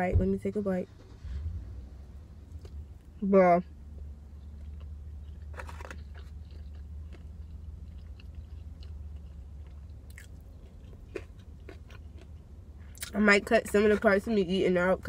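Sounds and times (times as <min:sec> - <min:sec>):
low hum: 0:00.0 - 0:15.0
person chewing food: 0:03.9 - 0:13.1
soft crunches: 0:04.6 - 0:07.3.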